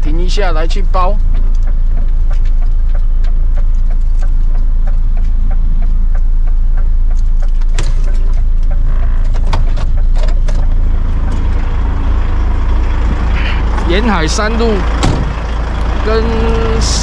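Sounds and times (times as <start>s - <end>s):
motorcycle engine rumble: 0.0s - 17.0s
quick regular ticking: 0.3s - 11.8s
sharp clicks and knocks: 1.2s - 11.6s.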